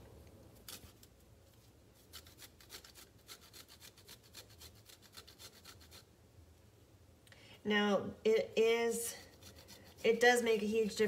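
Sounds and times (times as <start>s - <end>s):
ginger scraping on grater: 2.0s - 6.0s, 9.1s - 10.4s.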